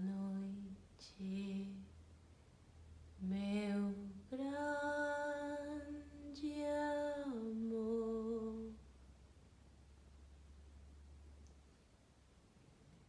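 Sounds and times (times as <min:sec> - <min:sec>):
woman singing long notes: 0:03.2 - 0:08.8.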